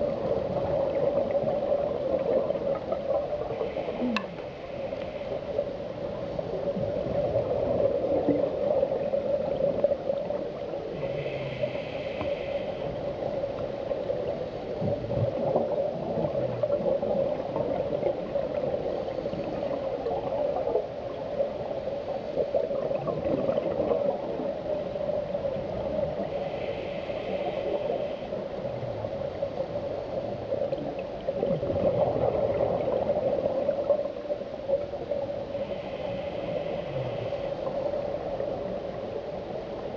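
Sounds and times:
scuba regulator breathing gurgle: 0.0s - 5.7s, 10.8s - 13.4s, 26.1s - 28.9s, 35.4s - 38.6s
underwater hum: 0.0s - 39.9s.

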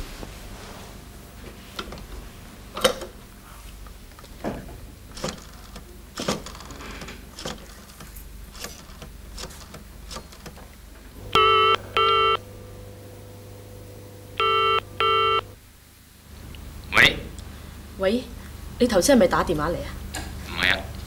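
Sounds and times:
faint steady hum: 0.0s - 21.0s
telephone ringback tone: 11.3s - 12.4s, 14.4s - 15.6s.

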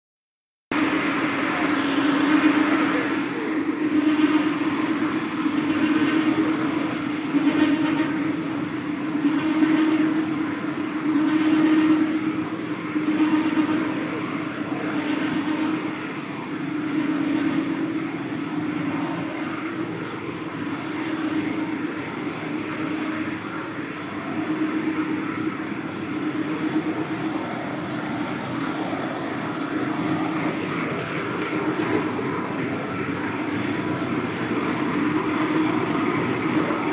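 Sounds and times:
machine drone with low hum: 0.7s - 36.9s
faint high-pitched whines: 0.8s - 36.9s.

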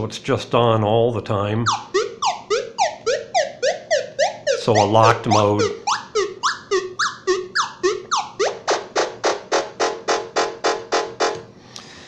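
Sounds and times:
synthesized chirps: 1.6s - 9.6s.

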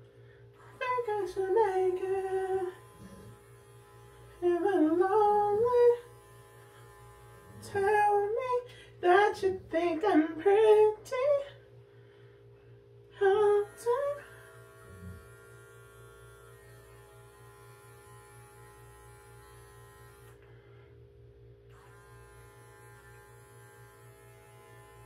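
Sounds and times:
electric clipper buzzing: 0.6s - 8.6s, 13.3s - 20.5s, 21.7s - 25.0s.

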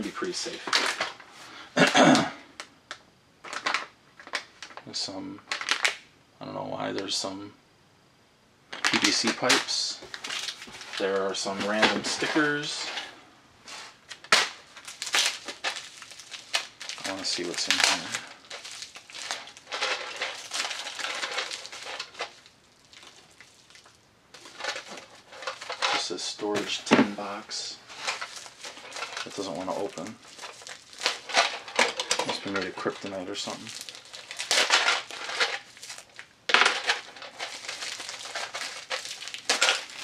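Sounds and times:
plastic packaging crinkling: 0.0s - 1.2s, 3.5s - 4.8s, 5.5s - 6.0s, 8.7s - 13.1s, 13.7s - 40.0s
hands handling a metal tin: 14.1s - 22.4s, 24.4s - 40.0s.

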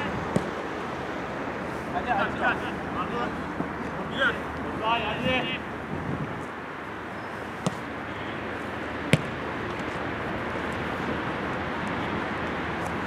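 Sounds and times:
football being kicked: 0.3s - 0.6s, 7.6s - 7.8s, 9.1s - 9.4s
wind noise on microphone: 5.2s - 6.6s.

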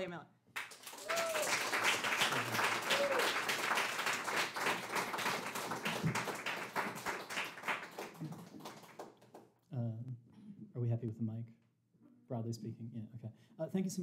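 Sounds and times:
audience applauding: 0.6s - 9.4s.

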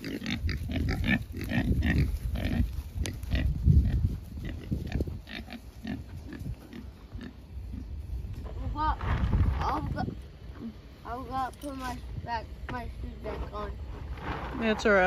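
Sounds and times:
pigs grunting: 0.0s - 8.0s.

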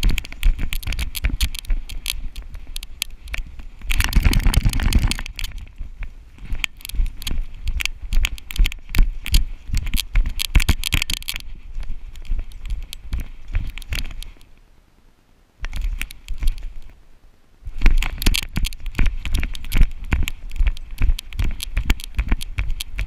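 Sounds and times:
camera knocks and rattles: 0.0s - 5.7s, 6.4s - 11.4s.

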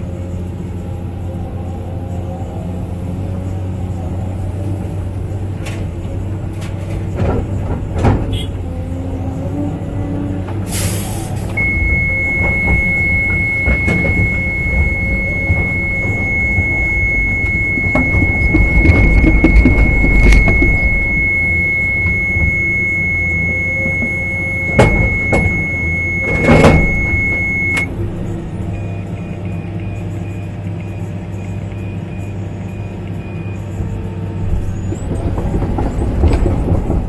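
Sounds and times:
excavator diesel engine: 0.0s - 37.0s
hydraulics working: 10.5s - 30.5s
short hiss: 10.7s - 11.4s
steady high-pitched tone: 11.6s - 27.9s.

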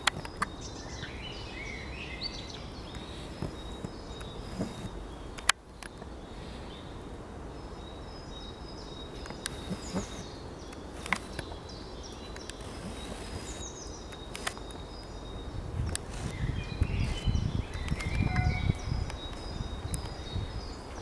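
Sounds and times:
small birds chirping: 0.0s - 21.0s
sharp clicks: 9.2s - 11.6s, 12.3s - 15.0s, 15.8s - 16.4s, 17.1s - 18.4s.

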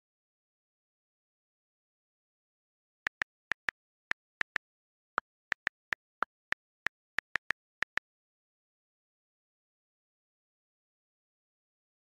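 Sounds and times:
keyboard keystrokes typing: 3.1s - 3.7s, 5.5s - 8.0s.

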